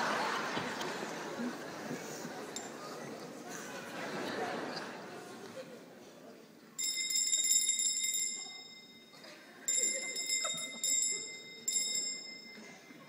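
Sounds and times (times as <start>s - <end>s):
small bell ringing in trills: 6.8s - 13.0s.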